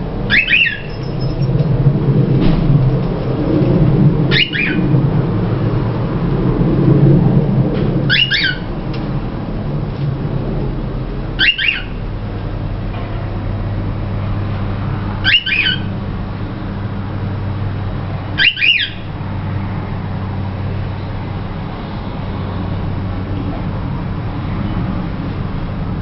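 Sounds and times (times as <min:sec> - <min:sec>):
steady low hum: 0:00.0 - 0:26.0
cockatiel chirping whistles: 0:00.3 - 0:01.4, 0:04.3 - 0:04.8, 0:08.1 - 0:08.7, 0:11.4 - 0:12.0, 0:15.2 - 0:15.9, 0:18.4 - 0:19.0.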